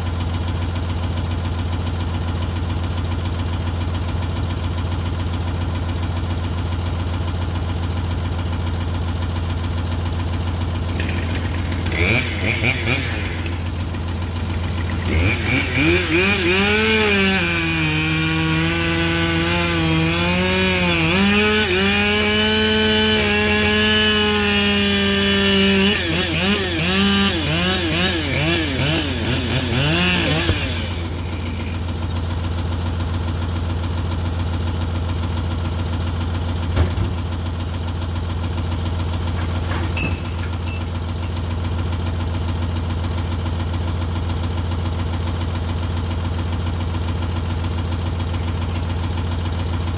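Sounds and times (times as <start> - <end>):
diesel engine idling: 0.0 - 49.9
chainsaw cutting through log: 10.7 - 32.0.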